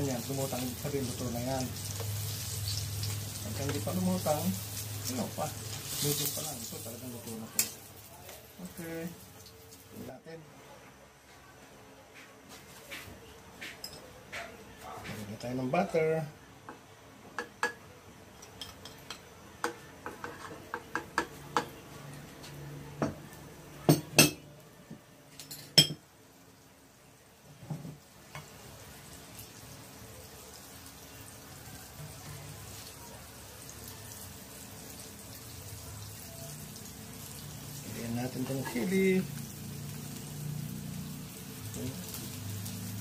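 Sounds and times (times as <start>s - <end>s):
butter sizzling in pan: 0.0s - 10.2s, 27.6s - 43.0s.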